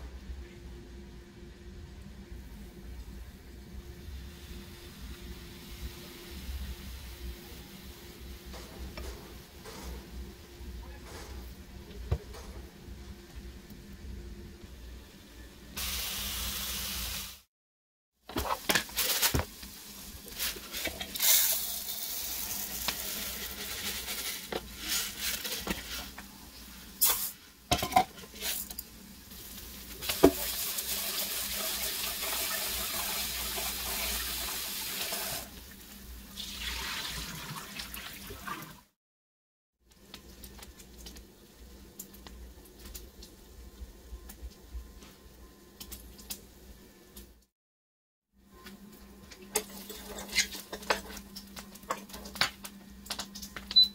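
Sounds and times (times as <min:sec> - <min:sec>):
pot and lid clattering: 0:27.7 - 0:28.3
water running: 0:30.0 - 0:38.9.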